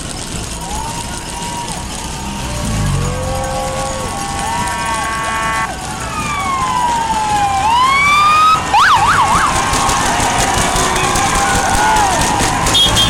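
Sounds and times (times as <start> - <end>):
electronic siren wailing and yelping: 4.6 - 9.6.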